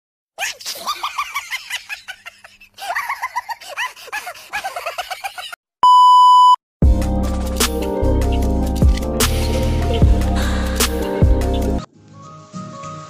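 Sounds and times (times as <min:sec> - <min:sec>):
electronic beep tone: 0:05.8 - 0:06.6
music: 0:06.8 - 0:13.0.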